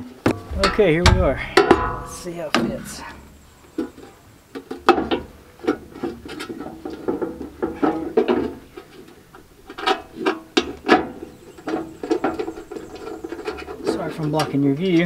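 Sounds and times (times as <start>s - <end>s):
metal can knocking and scraping: 0.0s - 3.6s.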